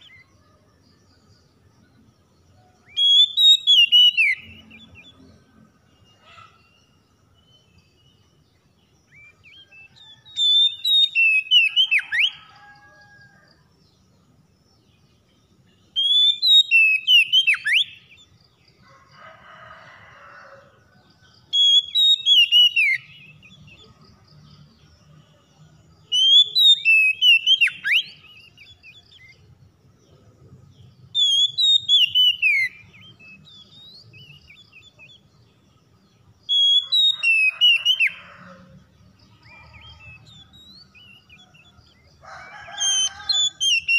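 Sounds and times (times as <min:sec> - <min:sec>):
bird song whistled phrases: 0:02.8 - 0:05.1, 0:09.1 - 0:12.5, 0:15.9 - 0:18.1, 0:21.5 - 0:23.8, 0:26.1 - 0:29.4, 0:31.2 - 0:35.2, 0:36.5 - 0:38.1, 0:42.8 - 0:43.9.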